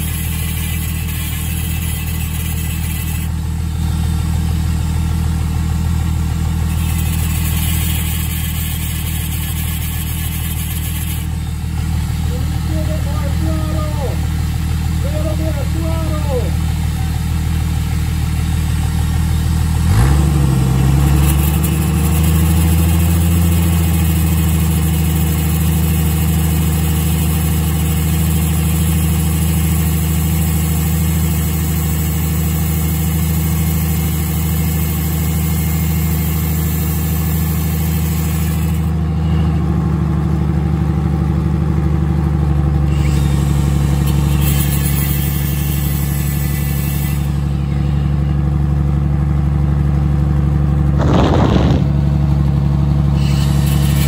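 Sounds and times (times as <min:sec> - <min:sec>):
angle grinder cutting steel: 0:00.0 - 0:03.5, 0:06.5 - 0:14.3, 0:19.8 - 0:39.8, 0:42.5 - 0:48.6, 0:51.0 - 0:54.0
car engine running: 0:00.0 - 0:54.0.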